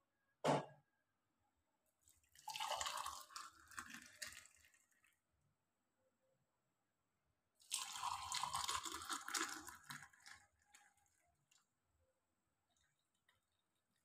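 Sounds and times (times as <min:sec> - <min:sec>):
milk pouring into a mug: 0:02.0 - 0:05.4, 0:07.6 - 0:14.0.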